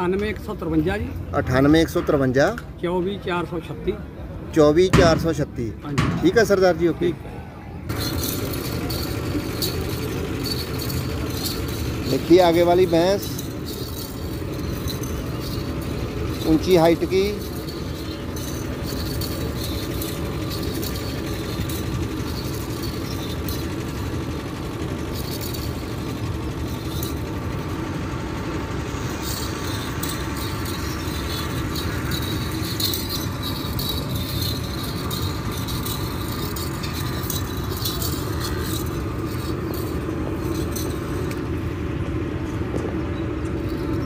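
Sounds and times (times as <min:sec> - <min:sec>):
faint steady hums: 0:03.5 - 0:44.0.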